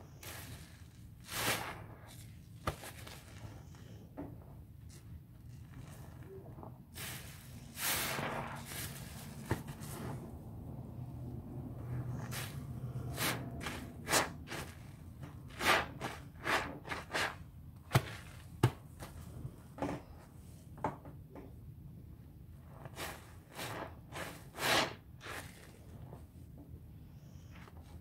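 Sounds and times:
sponges squelching in suds: 0.2 - 4.0, 6.9 - 10.3, 12.1 - 18.5.

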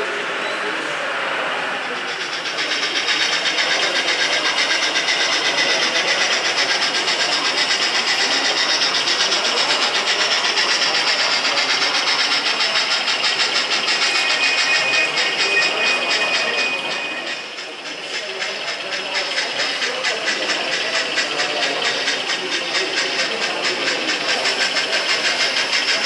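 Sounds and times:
model steam locomotive chuffing: 0.0 - 26.0
steady high tone: 1.9 - 18.8.

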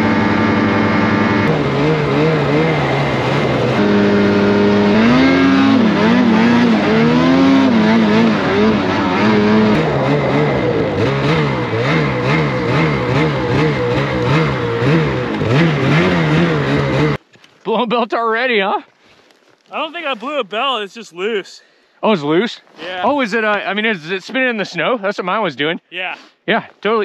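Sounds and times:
snowmobile engine revving: 0.0 - 17.2, 19.7 - 21.5, 22.8 - 24.9.

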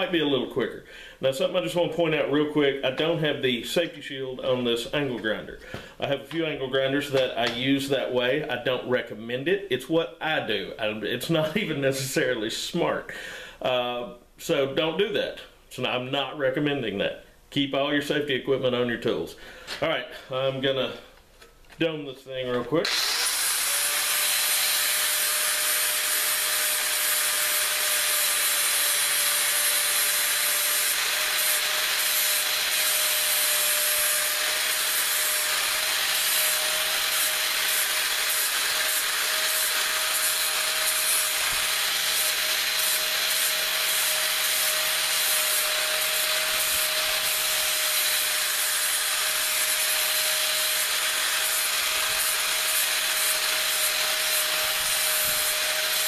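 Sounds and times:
angle grinder motor whine: 22.8 - 56.0.

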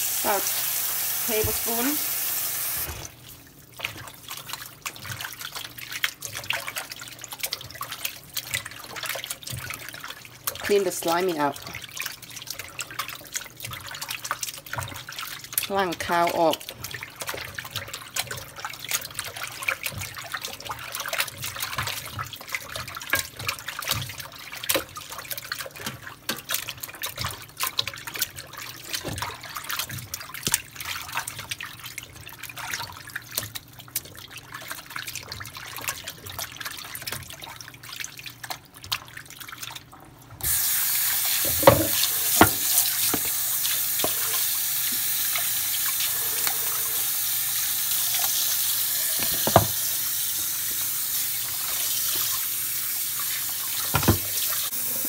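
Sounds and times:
faucet running: 0.0 - 3.4, 40.4 - 55.0
hands sloshing water in sink: 0.2 - 47.1.

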